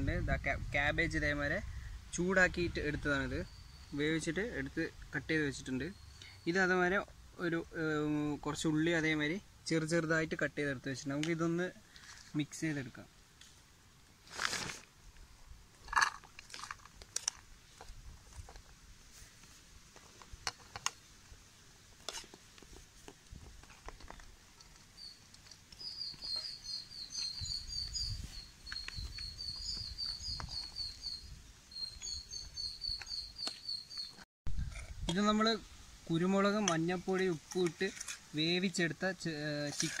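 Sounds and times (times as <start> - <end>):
small bird twittering: 25.8 - 34.2.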